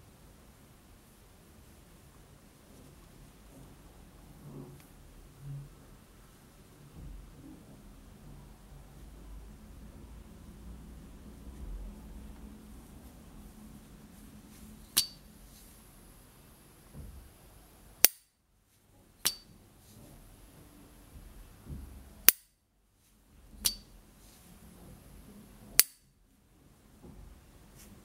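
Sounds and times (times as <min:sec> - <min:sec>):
lighter lid metallic ping: 0:15.0 - 0:15.2, 0:23.6 - 0:23.8.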